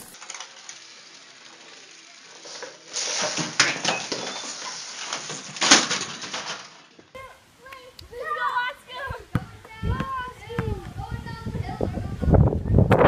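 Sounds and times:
toy car rattling: 0.0s - 6.9s.

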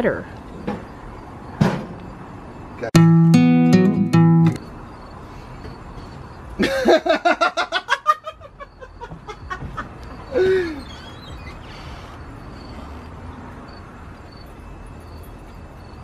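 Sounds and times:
man laughing loudly: 6.6s - 10.7s.

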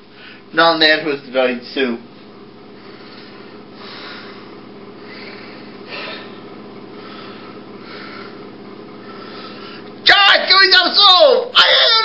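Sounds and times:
steady low hum: 0.0s - 12.0s
man breathing close to microphone: 2.7s - 9.9s.

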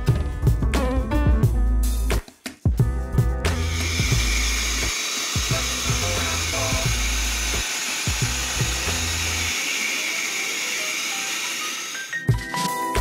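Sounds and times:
music with deep bass and beat: 0.0s - 4.6s
pet dryer blowing: 3.5s - 12.1s.

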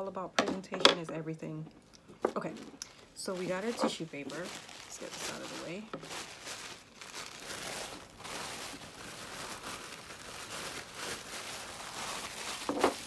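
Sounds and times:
tissue paper rustling: 3.2s - 13.0s.

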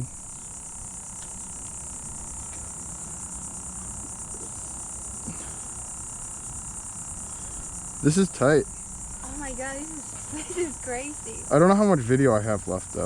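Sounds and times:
insects chirring: 0.0s - 13.0s.

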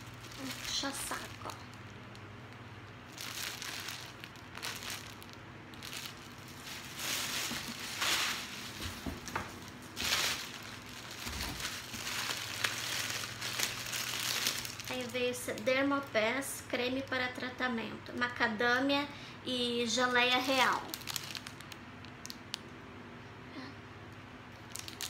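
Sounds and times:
plastic packaging crinkling: 0.0s - 16.4s, 20.1s - 22.6s, 24.5s - 25.0s.

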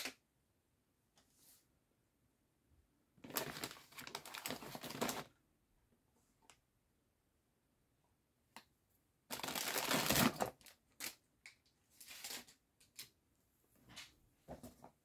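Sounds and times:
foil packets crinkling: 3.2s - 5.3s, 9.3s - 11.2s.

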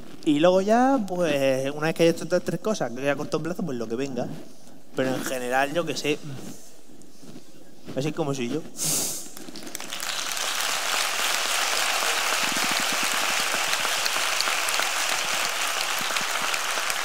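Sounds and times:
audience applauding: 9.4s - 17.0s.

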